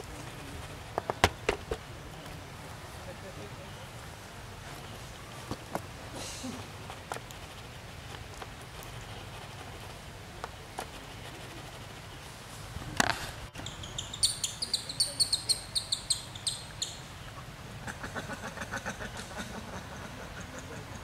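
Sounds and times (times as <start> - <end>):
bird chirping: 13.6 - 17.3.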